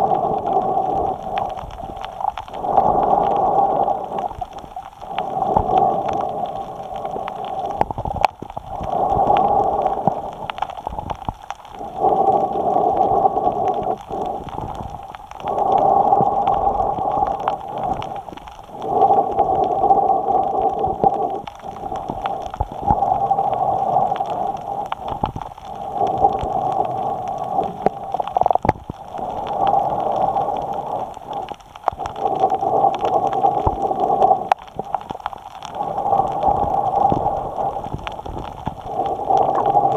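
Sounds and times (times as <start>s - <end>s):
breathing through snorkel: 2.5s - 4.4s, 5.0s - 7.8s, 8.7s - 10.5s, 11.7s - 28.3s.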